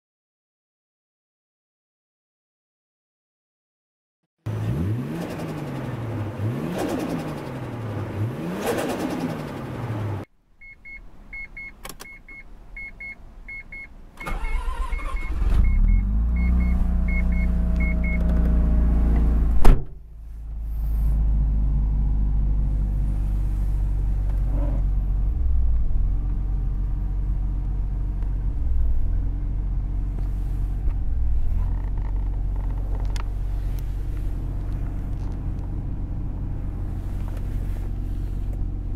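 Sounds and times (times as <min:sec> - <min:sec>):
car engine cranking and idling: 0:04.5 - 0:38.9
dashboard chime beeping: 0:10.6 - 0:13.9.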